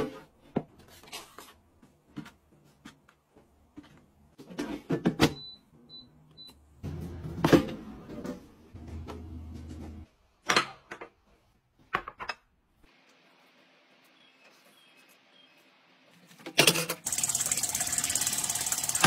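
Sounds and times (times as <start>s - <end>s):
air fryer low hum: 6.8s - 8.2s, 8.8s - 10.0s.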